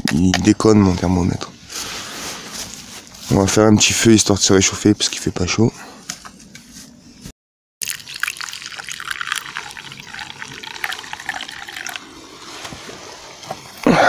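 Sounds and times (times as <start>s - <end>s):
water pouring into a cup: 7.8s - 13.4s.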